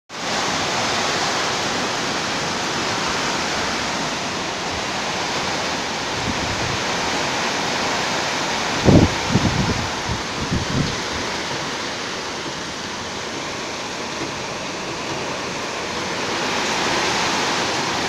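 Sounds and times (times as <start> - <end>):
heavy rain on metal roofs: 0.1 - 18.0
wind rumbling on microphone: 0.2 - 18.0.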